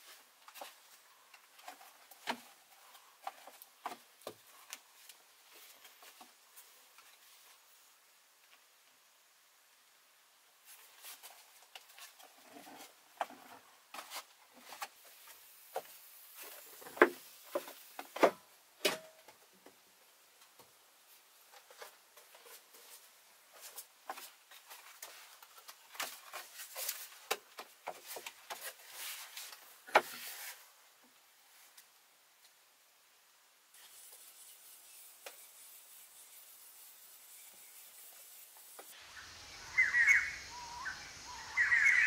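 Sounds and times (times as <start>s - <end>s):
rustling of handling things: 0.0s - 7.9s, 10.6s - 19.8s, 20.4s - 32.0s.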